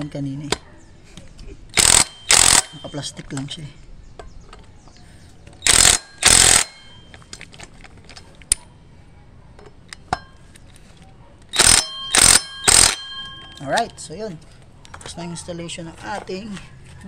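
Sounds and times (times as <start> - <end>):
impact driver hammering: 1.8 - 3.0, 5.7 - 7.1, 11.6 - 13.6.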